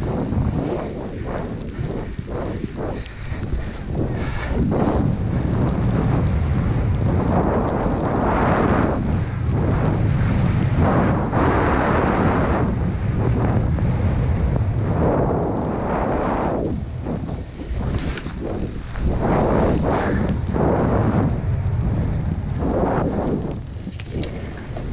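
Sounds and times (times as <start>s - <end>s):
rushing wind on microphone: 0.0s - 24.9s
snowboard hissing through powder: 3.0s - 5.1s, 15.8s - 21.4s.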